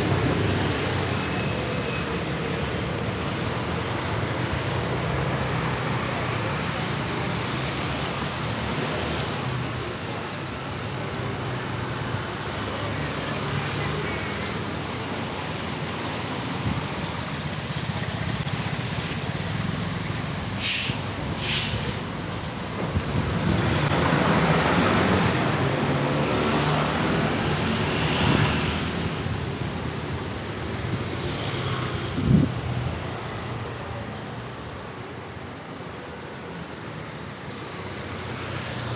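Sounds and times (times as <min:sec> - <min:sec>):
street traffic: 0:00.0 - 0:38.9
short high hisses: 0:20.6 - 0:22.0.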